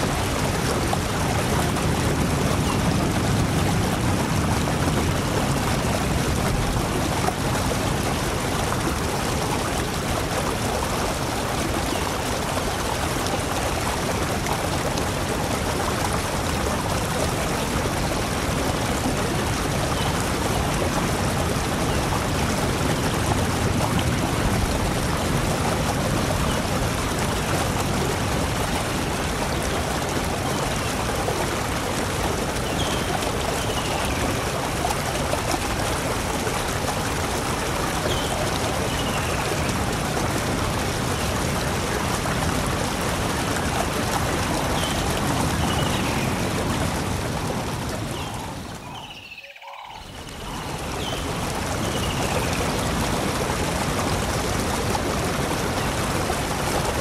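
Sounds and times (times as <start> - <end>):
waterfall rushing: 0.0 - 57.0
faint bird chirps: 48.2 - 51.2.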